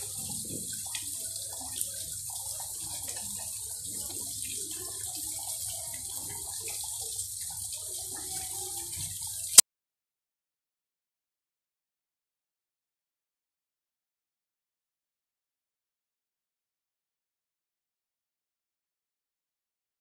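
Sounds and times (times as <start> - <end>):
water splashing down stone wall: 0.0 - 9.6.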